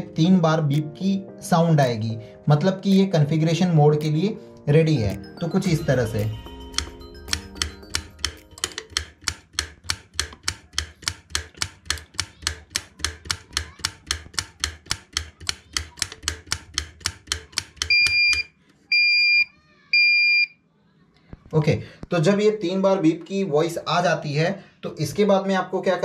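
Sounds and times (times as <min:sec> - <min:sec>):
rocker switch clicking: 0:06.7 - 0:18.5
short high-pitched beeps: 0:17.9 - 0:20.6.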